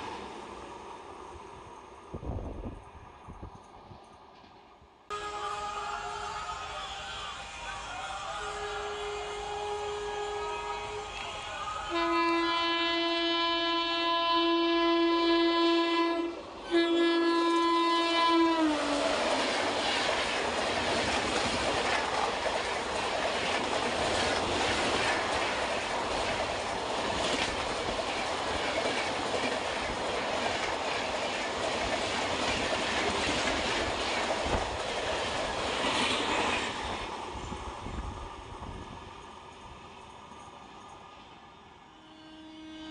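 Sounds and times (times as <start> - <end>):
train horn blasts: 5.1 - 19.4, 41.8 - 42.9.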